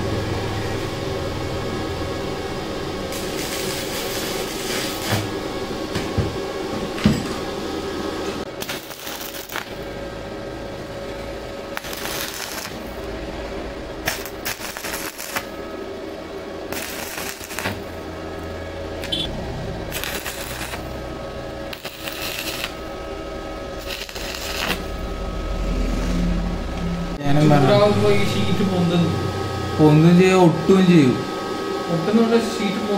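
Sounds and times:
welding arc crackling: 0:03.1 - 0:05.5, 0:08.5 - 0:10.0, 0:11.6 - 0:15.7, 0:16.4 - 0:27.0.

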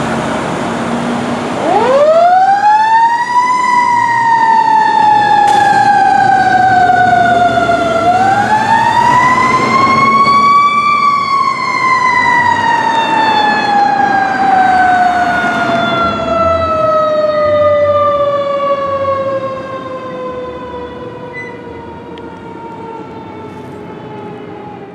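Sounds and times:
fire truck siren wailing: 0:00.0 - 0:24.9.

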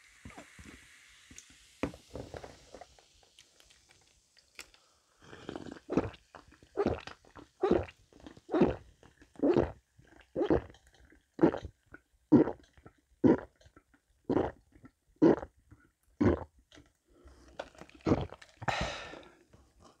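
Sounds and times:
person gulping swallows: 0:05.2 - 0:20.0.

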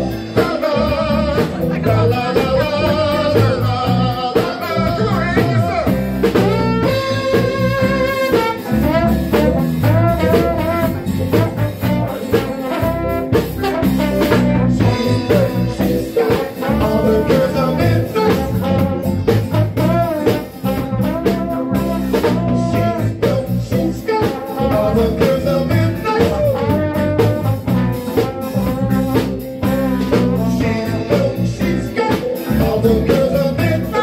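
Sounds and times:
drum kit beat: 0:00.0 - 0:34.0
electric bass: 0:00.0 - 0:34.0
keyboard: 0:00.0 - 0:34.0
trombone melody: 0:00.0 - 0:34.0.

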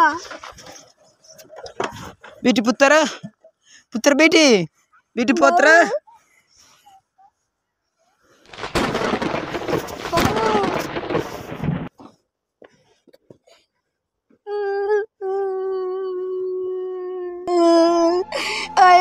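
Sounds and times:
noisy burst with wailing voice: 0:17.5 - 0:19.0.

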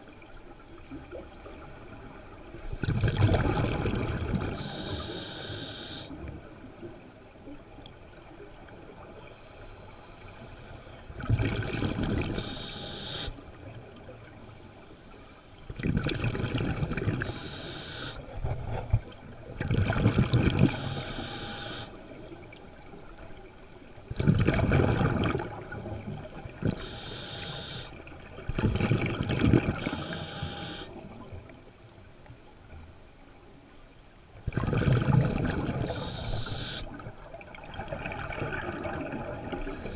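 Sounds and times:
exhaled bubbles rushing: 0:02.8 - 0:04.6, 0:11.2 - 0:12.4, 0:15.8 - 0:17.3, 0:19.6 - 0:20.8, 0:24.1 - 0:26.8, 0:28.4 - 0:30.0, 0:34.5 - 0:36.1, 0:37.4 - 0:39.8
regulator hiss on inhale: 0:04.6 - 0:06.2, 0:09.3 - 0:11.1, 0:12.2 - 0:13.5, 0:17.2 - 0:18.4, 0:20.6 - 0:22.0, 0:26.7 - 0:31.1, 0:35.8 - 0:37.1, 0:39.6 - 0:39.9.

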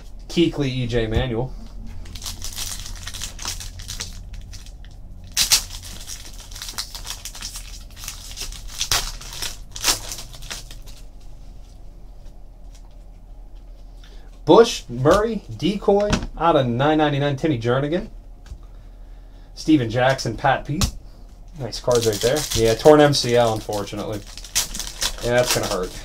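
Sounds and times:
low hum: 0:00.0 - 0:26.0
card wrappers crinkling and tearing: 0:02.0 - 0:11.3, 0:21.6 - 0:26.0.

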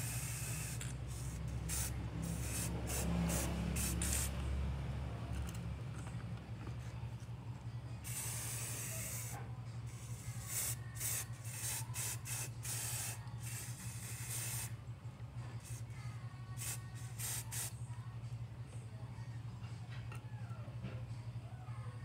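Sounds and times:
spray paint can hissing: 0:00.0 - 0:04.5, 0:08.0 - 0:14.8, 0:15.6 - 0:15.8, 0:16.6 - 0:17.7.

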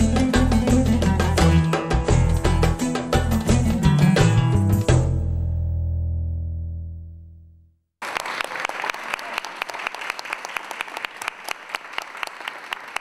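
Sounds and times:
belly-dance music: 0:00.0 - 0:05.0
audience applauding: 0:08.0 - 0:13.0.

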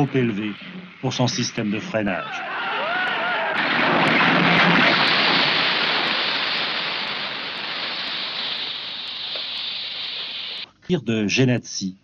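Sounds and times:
steam hissing: 0:04.0 - 0:10.7.

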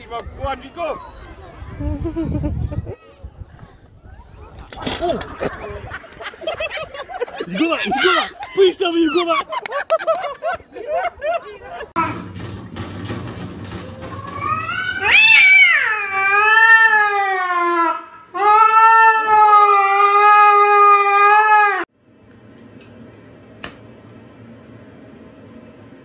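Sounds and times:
cat yowling: 0:14.4 - 0:21.8.

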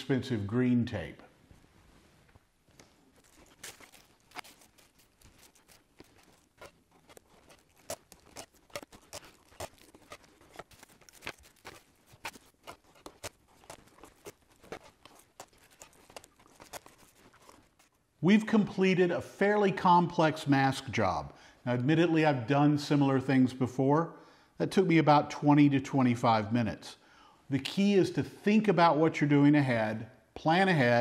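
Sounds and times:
tape and plastic crackling: 0:02.7 - 0:18.0.

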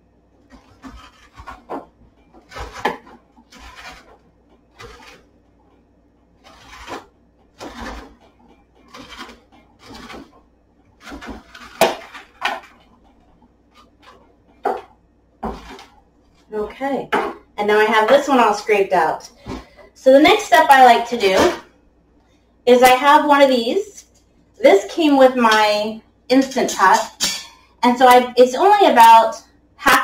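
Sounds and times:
metal spoon scraping squash: 0:00.5 - 0:05.3, 0:06.4 - 0:14.3.

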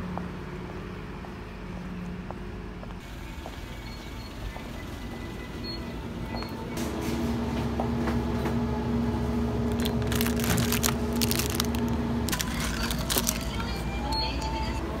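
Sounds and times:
refrigerated display hum: 0:00.0 - 0:15.0
plastic snack wrapper crinkling: 0:09.7 - 0:13.7.

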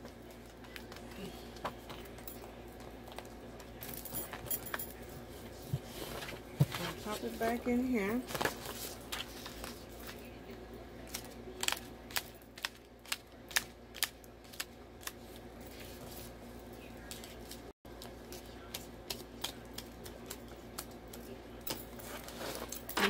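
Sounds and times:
paper rustle: 0:08.2 - 0:10.3.

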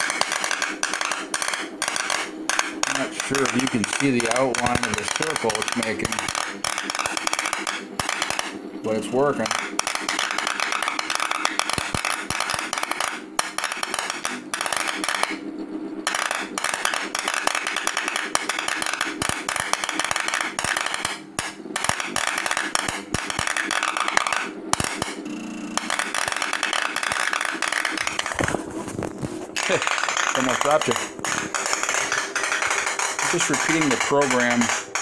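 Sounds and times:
rapid crackling of sparks: 0:25.8 - 0:35.0.

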